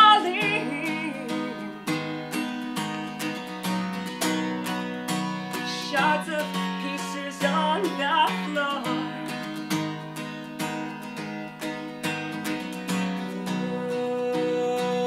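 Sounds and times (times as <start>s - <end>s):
woman singing: 0.0s - 2.1s, 5.6s - 9.7s, 13.2s - 15.0s
acoustic guitar strumming chords: 0.0s - 15.0s.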